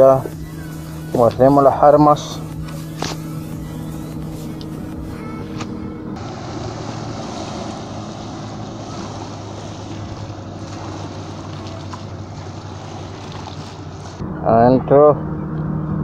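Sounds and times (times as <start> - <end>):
motorboat engine drone: 0.0 - 16.0
water rushing: 6.2 - 14.2.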